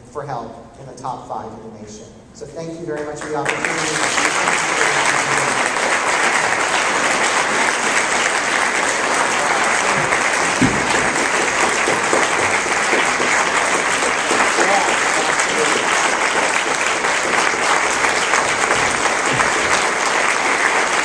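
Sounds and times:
audience applauding: 2.9 - 21.0
low thump: 10.5 - 11.2.

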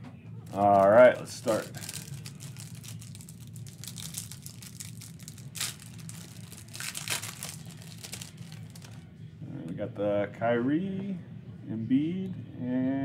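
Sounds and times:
plastic wrapper crinkling: 0.5 - 9.0
plastic wrapper ripping: 0.5 - 9.0.

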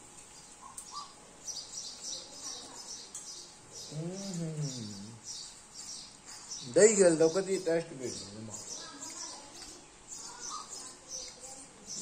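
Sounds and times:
small birds chirping: 0.0 - 12.0
hummed voice sound: 3.8 - 5.2.

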